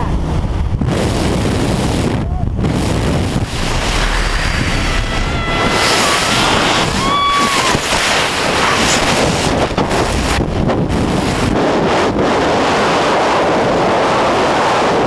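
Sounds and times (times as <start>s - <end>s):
wind rushing over microphone: 0.0s - 15.0s
high-pitched scream: 3.7s - 8.0s.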